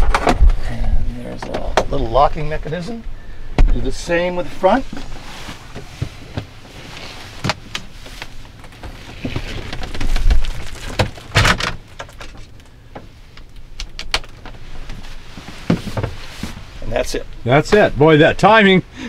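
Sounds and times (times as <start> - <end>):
rustling: 4.4 - 17.2
camper roof panel clicks and knocks: 8.7 - 13.1.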